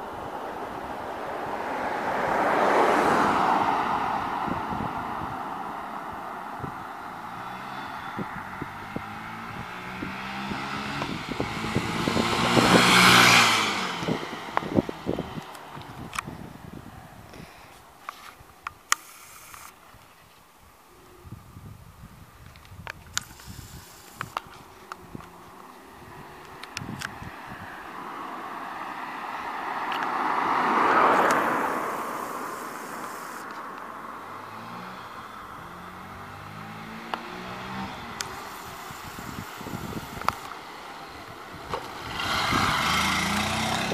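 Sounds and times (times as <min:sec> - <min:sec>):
motorcycle engine passing by: 0:06.6 - 0:15.4, 0:34.3 - 0:43.9.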